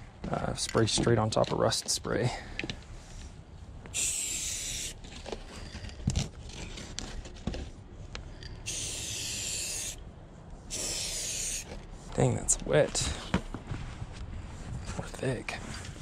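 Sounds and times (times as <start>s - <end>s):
spray paint can hissing: 3.9s - 5.0s, 8.7s - 10.0s, 10.7s - 11.7s.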